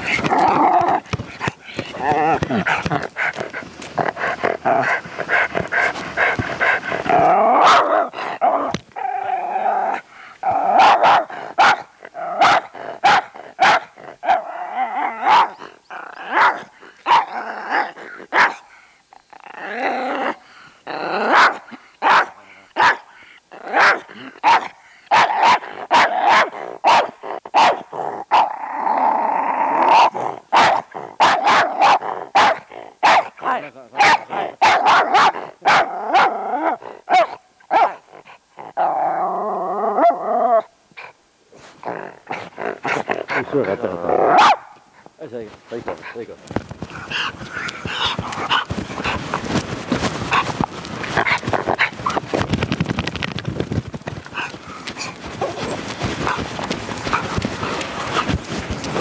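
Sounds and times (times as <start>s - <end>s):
dog growling: 0.0s - 22.6s, 23.5s - 45.0s, 45.7s - 52.6s, 54.1s - 59.0s
dog barking: 7.6s - 8.1s, 10.7s - 14.4s, 15.2s - 15.6s, 16.2s - 17.3s, 18.3s - 18.6s, 21.3s - 28.5s, 30.0s - 33.4s, 34.0s - 36.4s, 37.1s - 38.0s, 44.3s - 44.8s.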